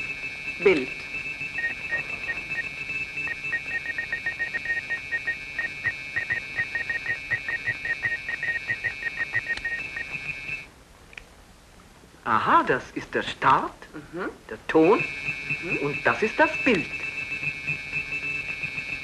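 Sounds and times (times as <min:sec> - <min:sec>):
steady high electronic tone: 0:00.0 - 0:10.6, 0:14.8 - 0:19.0
rapid irregular electronic bleeps: 0:00.0 - 0:10.7, 0:14.7 - 0:19.0.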